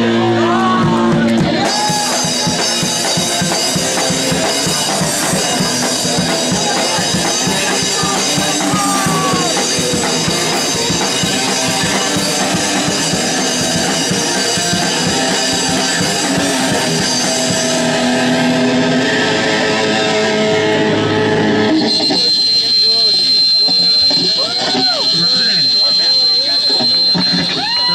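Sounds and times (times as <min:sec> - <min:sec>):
fast drumming on drum kit: 0:00.0 - 0:18.7
electric guitar: 0:00.0 - 0:27.9.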